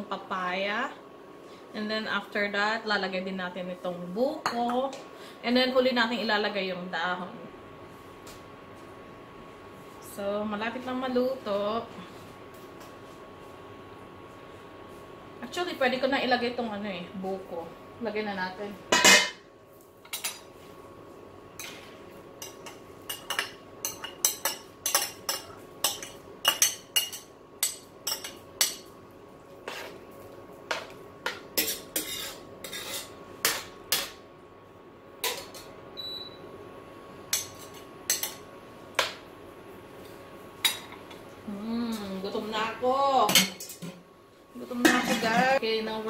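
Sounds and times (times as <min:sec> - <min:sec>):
faint steady hum: 0:00.0 - 0:46.0
utensils clinking on bowl and pot: 0:22.4 - 0:28.9, 0:44.8 - 0:45.6.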